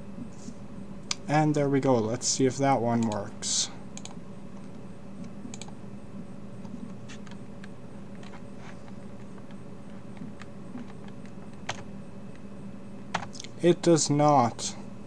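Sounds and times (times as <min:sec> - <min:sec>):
low electrical hum: 0:00.0 - 0:15.0
keyboard and mouse clicks: 0:03.0 - 0:03.2, 0:04.0 - 0:04.7, 0:05.5 - 0:05.8.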